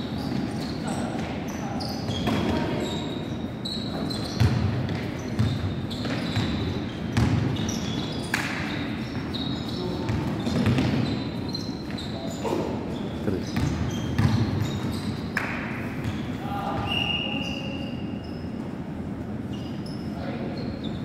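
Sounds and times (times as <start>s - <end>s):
sneakers squeaking: 0.0s - 21.0s
basketball dribbling on wooden court: 7.2s - 7.4s.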